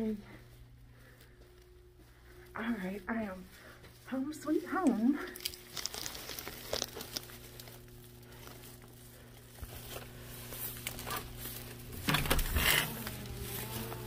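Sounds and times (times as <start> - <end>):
steady low hum: 0.0 - 14.0
bags crinkling and rustling: 5.2 - 14.0.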